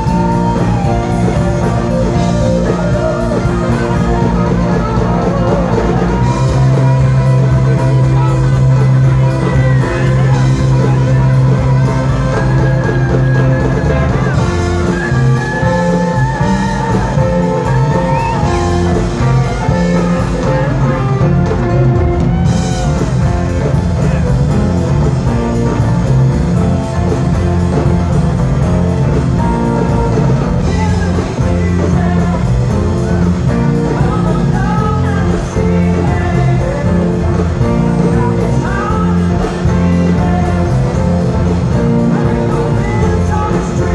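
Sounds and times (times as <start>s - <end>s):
lead guitar bending notes: 0.0s - 31.6s
drum kit: 0.0s - 43.9s
electric guitars: 0.0s - 43.9s.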